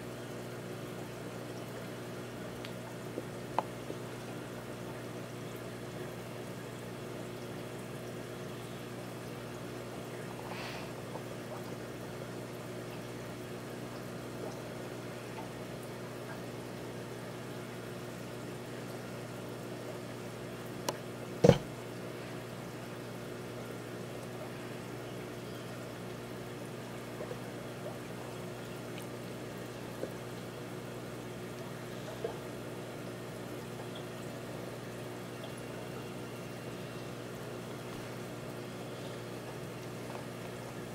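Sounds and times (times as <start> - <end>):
aquarium filter humming and bubbling: 0.0 - 40.9
short thump: 21.4 - 21.7.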